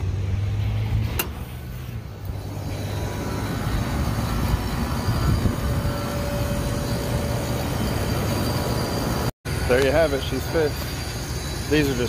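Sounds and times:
refrigeration unit humming: 2.1s - 12.0s.

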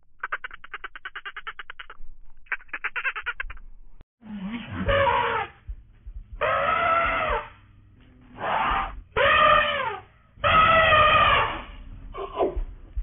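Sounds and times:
elephant calf crying: 4.7s - 5.7s, 6.3s - 7.6s, 8.4s - 12.4s.

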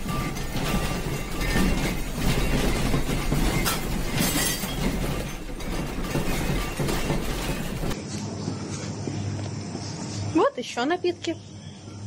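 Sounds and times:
household objects rattling: 0.0s - 8.0s.

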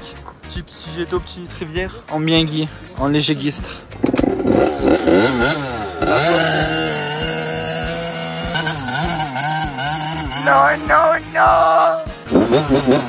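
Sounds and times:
dirt bike engine revving: 3.9s - 13.0s.

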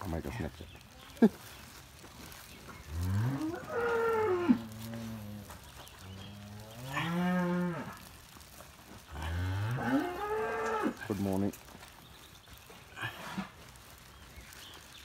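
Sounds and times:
cow mooing: 3.0s - 5.5s, 6.3s - 8.0s, 9.2s - 11.0s.

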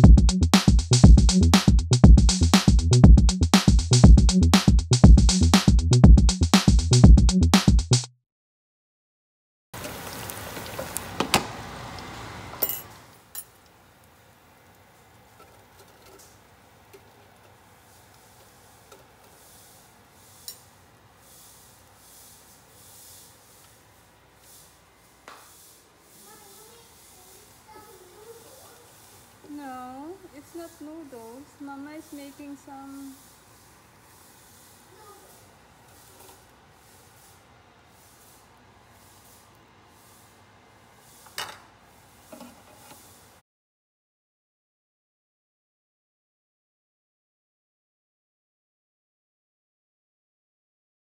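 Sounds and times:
hot oil sizzling: 9.8s - 43.4s
tongs clinking against metal: 12.6s - 13.6s, 20.4s - 20.7s.

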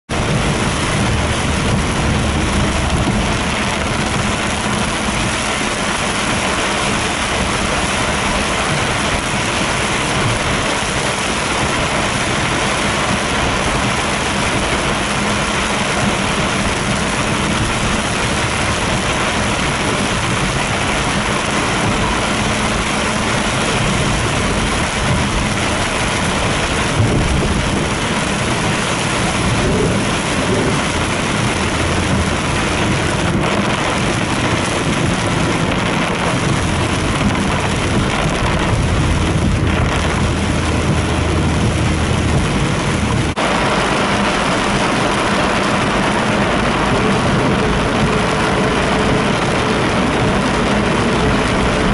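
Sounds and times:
heavy rain on car roof: 0.0s - 51.9s.

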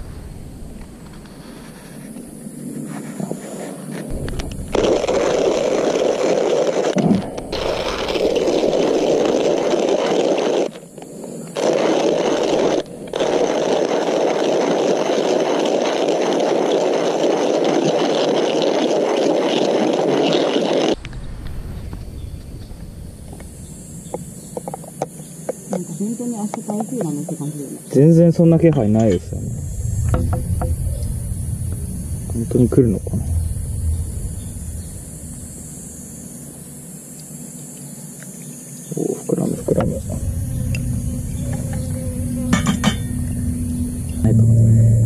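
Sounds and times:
hand coffee mill grinding beans: 4.8s - 10.8s, 11.6s - 21.0s.

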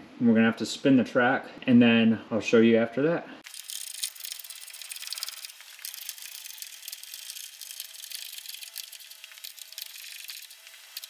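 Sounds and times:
hand ratchet clicking: 3.5s - 11.0s.

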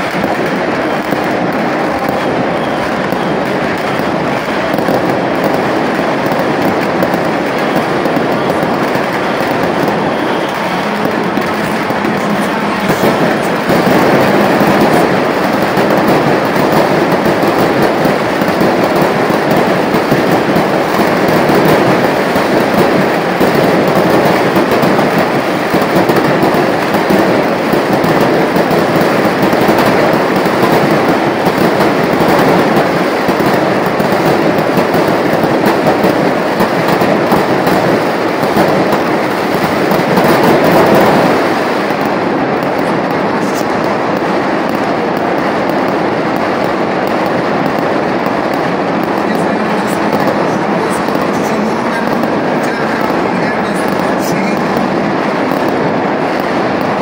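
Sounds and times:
fireworks crackling: 0.0s - 57.0s.

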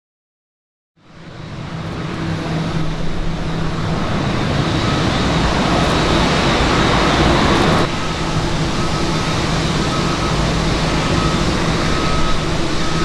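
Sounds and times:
jet engines taxiing: 1.0s - 13.0s.

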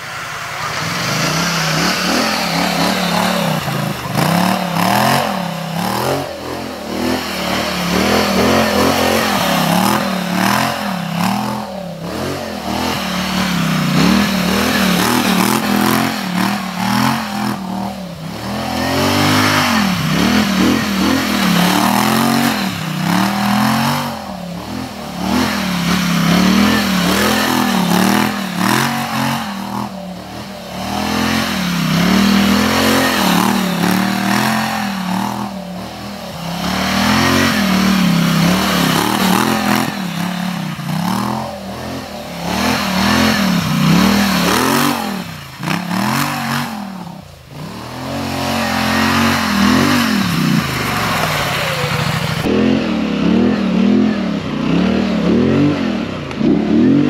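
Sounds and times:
atv engine revving: 0.0s - 57.0s
steady rushing noise: 0.0s - 57.0s.

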